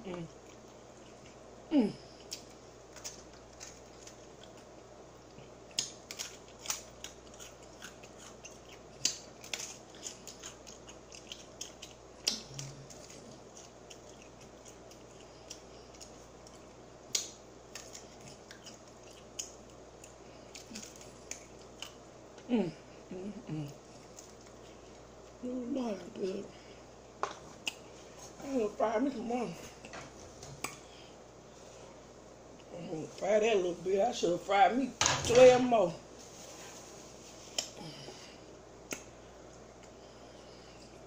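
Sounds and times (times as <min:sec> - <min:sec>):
chewing with lip smacks: 0:00.1 - 0:01.5, 0:02.1 - 0:22.5, 0:23.4 - 0:25.4, 0:27.4 - 0:28.3.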